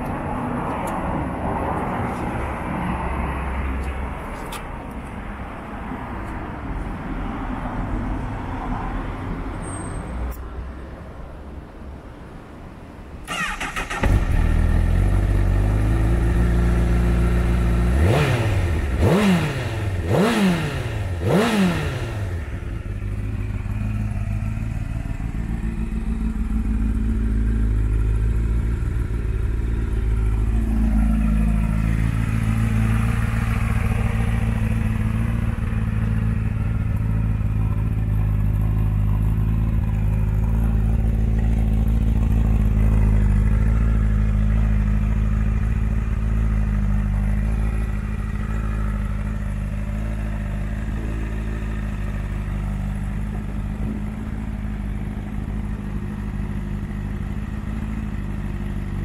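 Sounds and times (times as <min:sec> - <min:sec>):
motorcycle engine starting: 0:13.2 - 0:59.0
motorcycle engine idling: 0:18.7 - 0:59.0.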